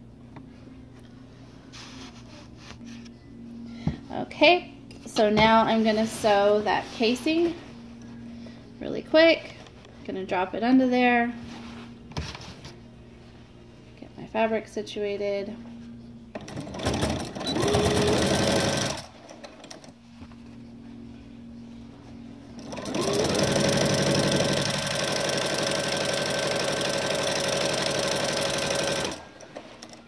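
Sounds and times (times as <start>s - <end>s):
sewing machine stitching: 16.4s - 19.8s, 22.6s - 30.0s.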